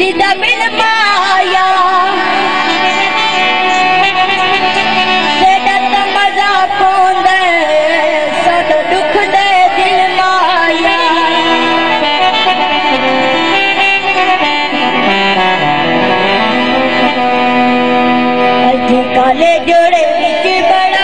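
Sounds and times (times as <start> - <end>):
person singing: 0.0 - 13.5, 18.6 - 21.0
harmonium playing: 0.0 - 21.0.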